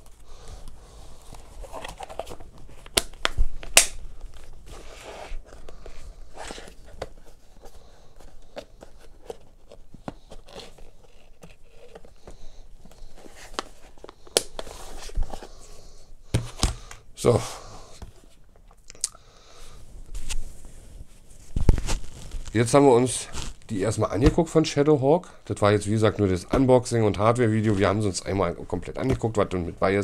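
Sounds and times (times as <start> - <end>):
plastic case rustling and scraping: 0.0 - 3.0, 4.4 - 15.7.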